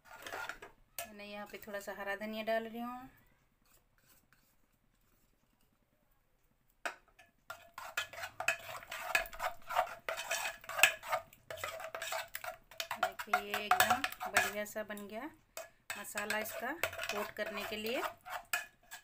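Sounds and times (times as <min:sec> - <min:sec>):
spoon stirring in metal bowl: 0:00.0 - 0:02.2, 0:03.6 - 0:05.6, 0:06.9 - 0:19.0
spoon clinking against bowl: 0:12.8 - 0:14.6.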